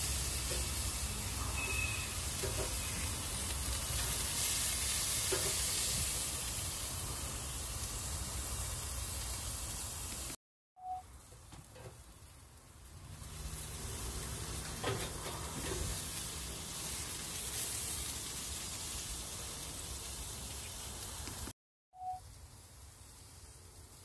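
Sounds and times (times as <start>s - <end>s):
steak sizzling on a grill: 0.0s - 10.4s, 11.8s - 21.5s, 22.2s - 24.0s.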